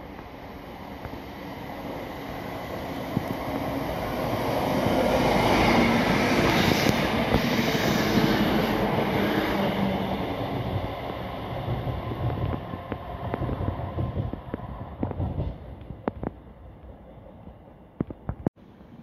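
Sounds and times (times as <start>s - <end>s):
passenger train passing: 0.0s - 19.0s.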